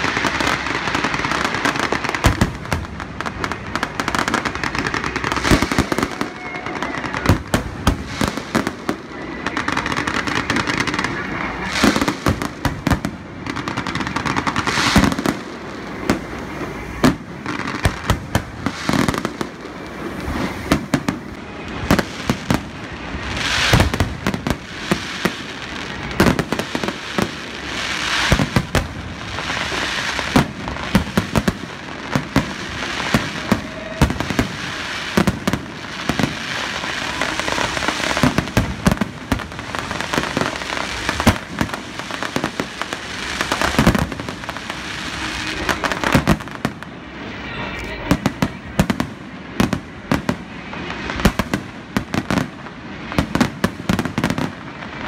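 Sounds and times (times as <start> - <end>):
fireworks bangs: 0.0 - 55.0
fireworks crackling: 0.0 - 55.0.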